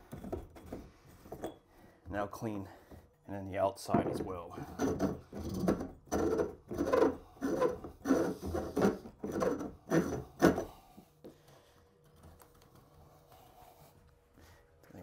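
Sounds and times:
reamer scraping pipe: 4.6s - 10.7s.

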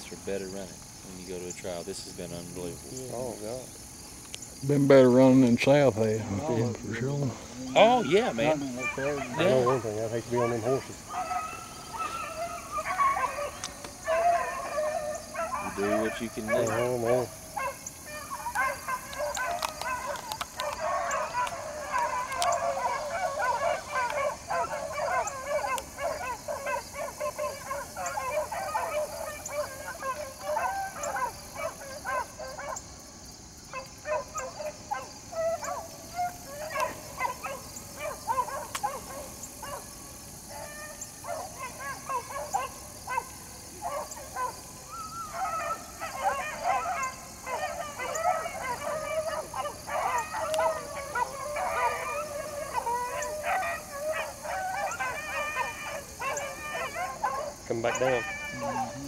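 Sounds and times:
hounds baying in chorus: 3.1s - 59.0s.

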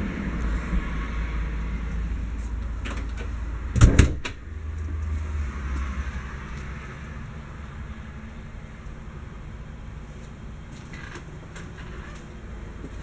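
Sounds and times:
thump with sharp clacks: 3.8s - 4.4s.

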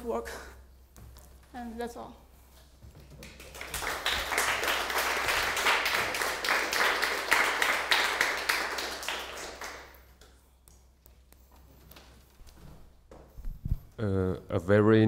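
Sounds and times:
audience applauding: 3.2s - 10.1s.

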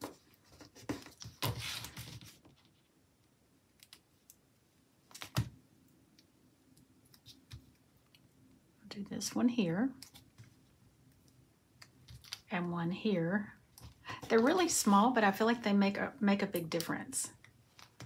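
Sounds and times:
paper rustling: 0.0s - 2.8s.

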